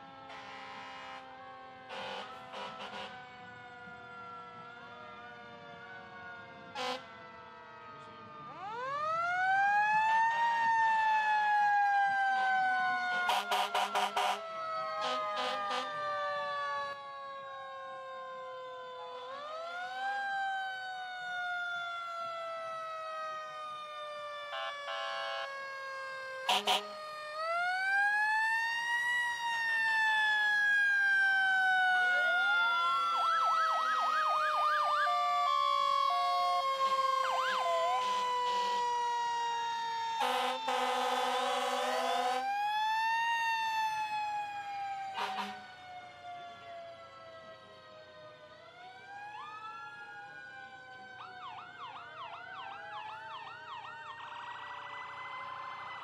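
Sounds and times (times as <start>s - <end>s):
emergency sirens wailing: 0.0s - 56.0s
warbling siren: 0.0s - 56.0s
horn blasts: 0.3s - 1.2s, 24.5s - 25.5s, 26.5s - 26.9s, 45.2s - 45.7s.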